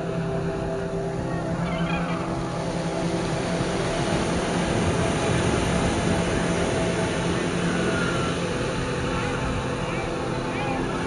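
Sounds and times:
steady low drone: 0.0s - 11.0s
wind on microphone: 0.0s - 11.0s
waves breaking on shore: 2.2s - 11.0s.

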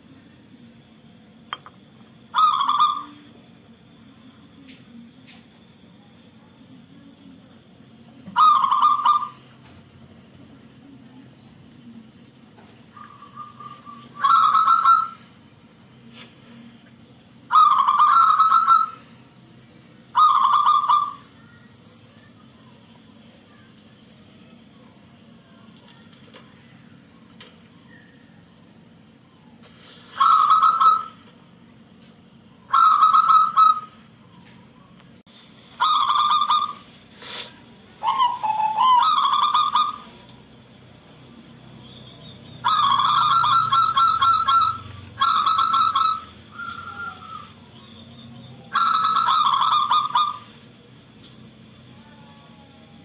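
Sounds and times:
dove cooing: 2.3s - 3.4s, 8.2s - 9.7s, 13.0s - 15.3s, 17.5s - 19.2s, 20.1s - 21.5s, 30.1s - 31.3s, 32.7s - 34.0s, 35.7s - 40.3s, 42.2s - 50.7s.

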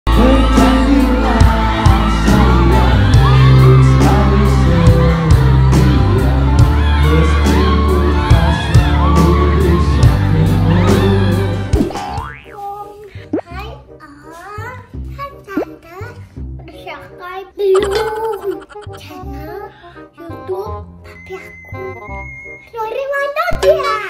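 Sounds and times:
crowd whooping and shouting: 0.1s - 11.8s
pop band music with singing: 0.1s - 12.2s.

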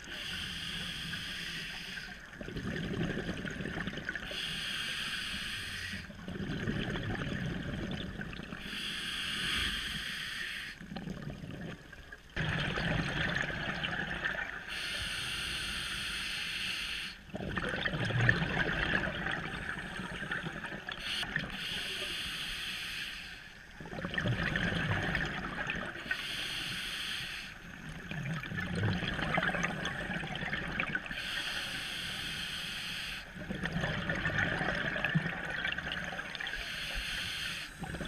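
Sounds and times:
regulator inhale hiss: 0.0s - 2.3s, 4.3s - 6.1s, 8.6s - 10.8s, 14.7s - 17.2s, 21.0s - 23.7s, 26.1s - 27.8s, 31.1s - 33.4s, 36.5s - 38.0s
exhaled air bubbling underwater: 0.0s - 38.0s.

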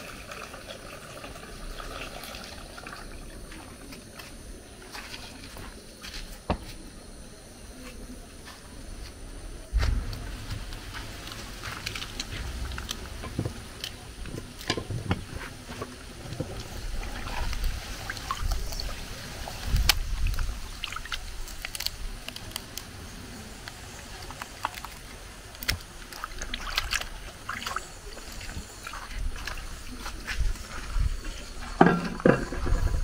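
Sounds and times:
water sloshing in a plastic bowl: 10.4s - 21.9s, 24.0s - 33.0s
hands rubbing fish in water: 23.8s - 30.9s.

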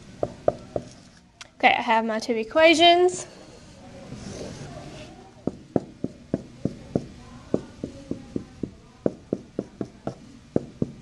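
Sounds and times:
marker tapping on whiteboard: 0.2s - 1.0s, 5.4s - 11.0s.

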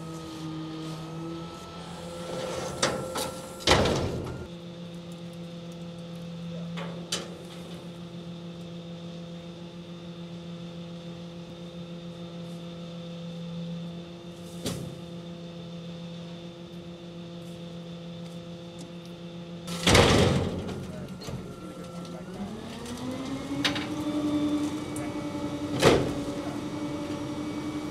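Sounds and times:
garbage truck idling: 0.0s - 4.5s, 19.3s - 27.9s.

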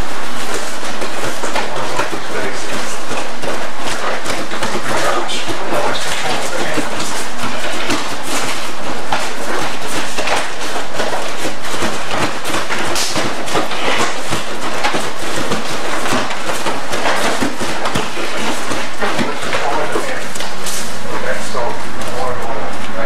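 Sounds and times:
bare feet thudding on mats: 0.0s - 21.0s.

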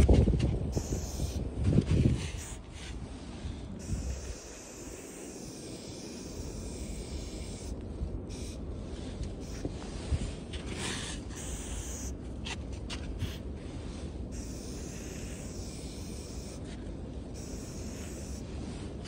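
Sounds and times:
low steady rumble: 0.0s - 19.0s
spray paint hissing from can: 0.7s - 3.0s, 3.8s - 8.6s, 9.4s - 10.1s, 10.8s - 12.2s, 13.2s - 13.4s, 14.3s - 19.0s.

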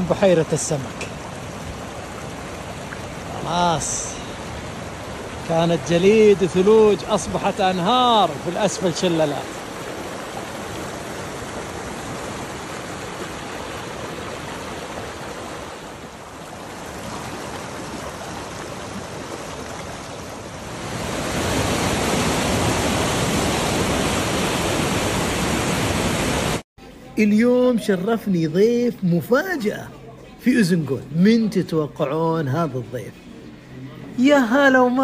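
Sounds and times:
stream rushing over rocks: 0.0s - 26.6s.

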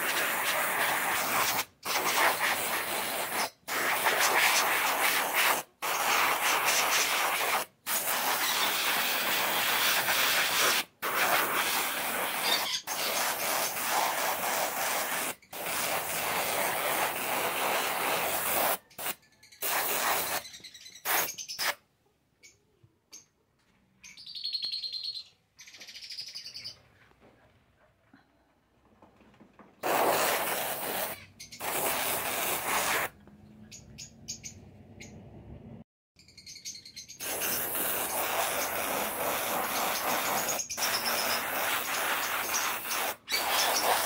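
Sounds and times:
sandpaper rubbing on wood: 0.0s - 20.5s, 29.8s - 33.2s, 37.2s - 44.0s.

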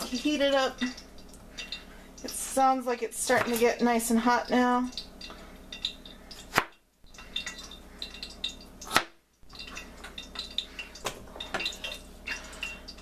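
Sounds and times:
oil crackling in a pan: 0.0s - 13.0s
knife chopping on cutting board: 6.5s - 6.7s.

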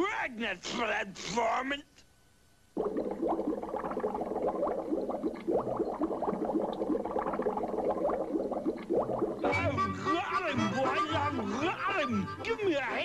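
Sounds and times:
cartoon bubbling water: 2.8s - 9.9s.

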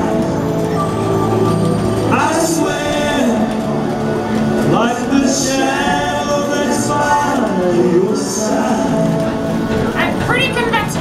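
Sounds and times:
band track: 0.0s - 11.0s
man singing with backing harmonies: 2.1s - 9.9s.

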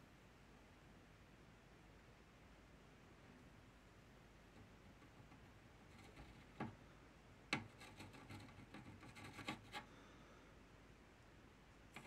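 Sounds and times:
faint tool clicks and scrapes: 4.6s - 6.8s, 7.5s - 9.9s.

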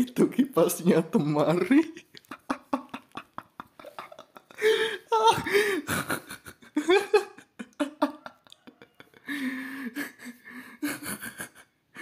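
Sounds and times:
person laughing: 1.8s - 12.0s.

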